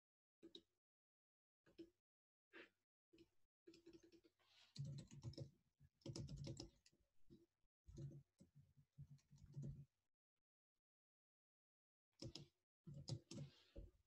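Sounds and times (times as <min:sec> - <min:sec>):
faint keyboard typing: 0:03.7 - 0:06.8, 0:09.0 - 0:09.8, 0:12.2 - 0:13.7.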